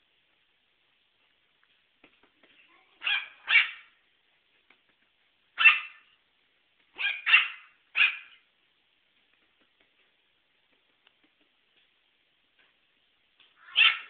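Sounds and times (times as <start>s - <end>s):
small dog barking: 3.0s - 3.9s, 5.6s - 6.1s, 7.0s - 8.4s, 13.6s - 14.0s.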